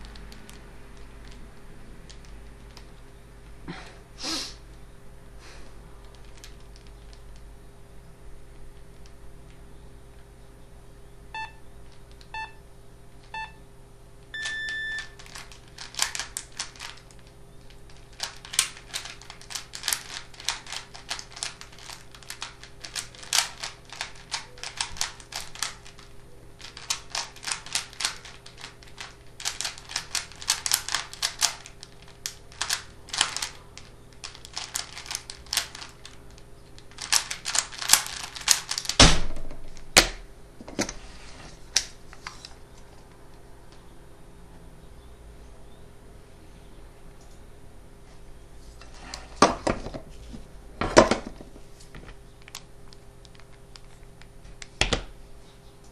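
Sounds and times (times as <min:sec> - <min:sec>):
plastic puzzle cube clicking: 0:02.1 - 0:02.9, 0:06.0 - 0:07.4, 0:15.2 - 0:39.0
short electronic beeps: 0:14.4 - 0:15.2.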